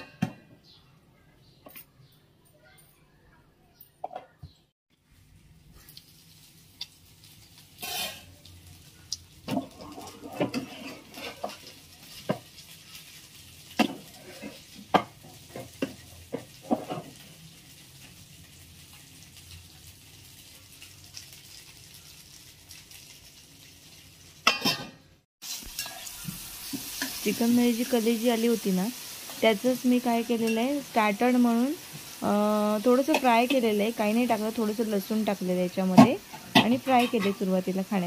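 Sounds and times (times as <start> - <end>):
fish sizzling in a pan: 5.0 - 38.0
spatula scraping and knocking: 9.5 - 12.4.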